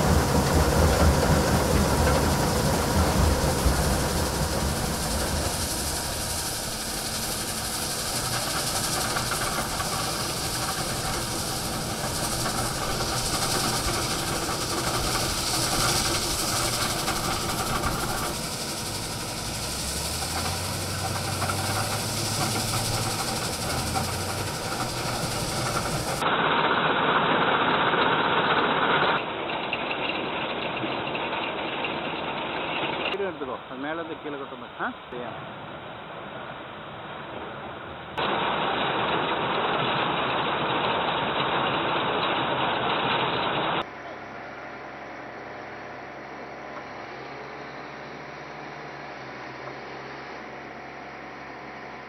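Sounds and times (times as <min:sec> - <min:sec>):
crushed stone hissing and rattling: 0:00.0 - 0:26.2
machinery rumbling: 0:00.0 - 0:26.5.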